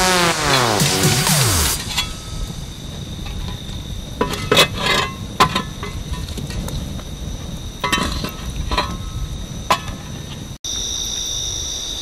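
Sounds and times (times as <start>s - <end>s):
crickets chirring: 1.4s - 12.0s
campfire coals crackling: 1.5s - 10.6s
fire popping and snapping: 1.7s - 10.6s.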